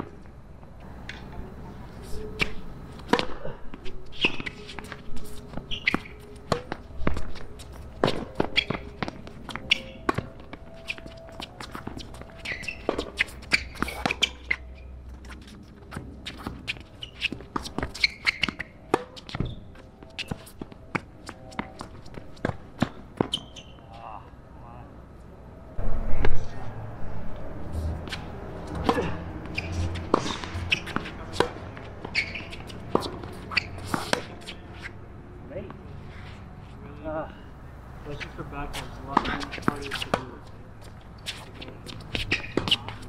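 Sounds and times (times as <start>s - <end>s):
racket striking tennis ball: 2.4s - 3.4s, 5.8s - 7.2s, 28.0s - 34.6s, 41.2s - 43.0s
ball bouncing on court: 41.9s - 43.0s.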